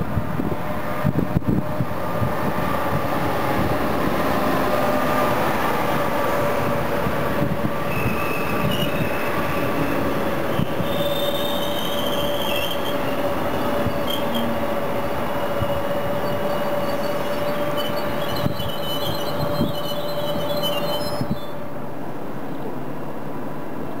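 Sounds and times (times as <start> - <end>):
train wheels rumbling on rail: 0.0 - 24.0
wheels squealing: 7.9 - 14.6, 15.3 - 21.6.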